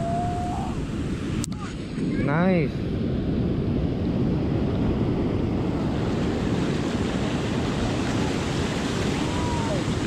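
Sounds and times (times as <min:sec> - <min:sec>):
ocean surf washing in: 0:00.0 - 0:10.0
wind on microphone: 0:00.0 - 0:10.0.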